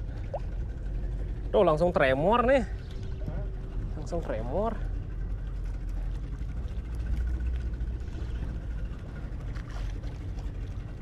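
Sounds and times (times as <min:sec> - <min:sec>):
water lapping against canoe: 0:05.2 - 0:11.0.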